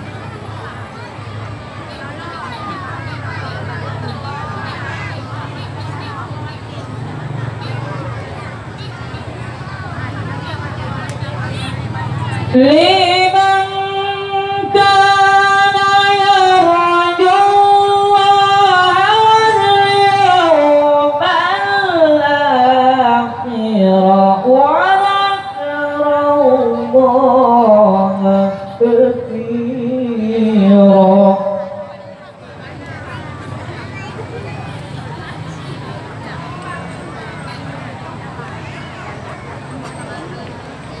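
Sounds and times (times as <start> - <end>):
person chanting through loudspeakers: 1.9 - 39.3.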